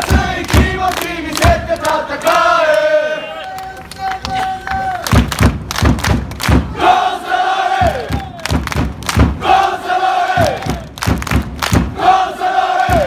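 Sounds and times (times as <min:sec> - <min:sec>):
crowd chanting in unison: 0:00.0 - 0:03.5, 0:06.6 - 0:08.5, 0:09.2 - 0:11.0, 0:11.7 - 0:13.0
crowd singing long held note: 0:00.0 - 0:03.9, 0:06.6 - 0:08.4, 0:09.3 - 0:10.9, 0:11.8 - 0:13.0
rhythmic clapping: 0:00.0 - 0:13.0.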